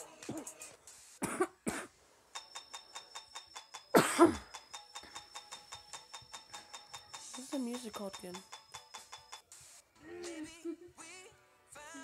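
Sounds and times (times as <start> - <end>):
fast ticking beat: 2.4 - 9.8
cough-like human voice: 4.0 - 4.5.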